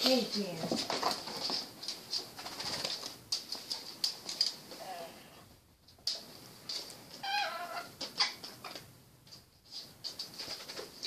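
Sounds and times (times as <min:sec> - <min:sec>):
parrot chirping: 0:07.2 - 0:08.6.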